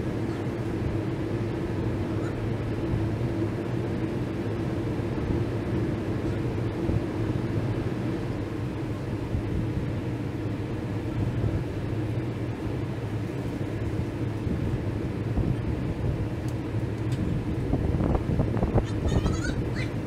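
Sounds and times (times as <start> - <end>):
heavy machinery drone: 0.0 - 20.0.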